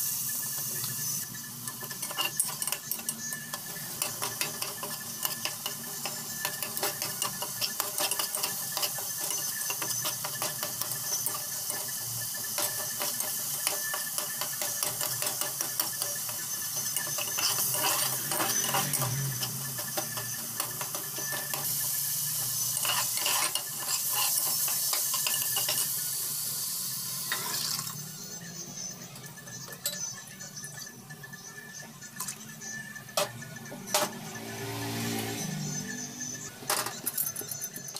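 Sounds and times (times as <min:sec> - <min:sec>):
masala sizzling in oil: 0:00.0 - 0:37.9
metal spatula scraping pot: 0:00.6 - 0:26.1.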